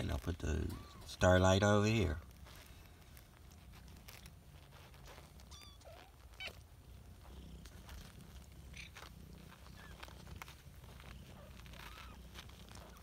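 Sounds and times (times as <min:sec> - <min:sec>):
cat purring: 0:00.0 - 0:13.0
kittens high squeaks: 0:00.6 - 0:01.2, 0:04.6 - 0:06.7, 0:08.7 - 0:13.0.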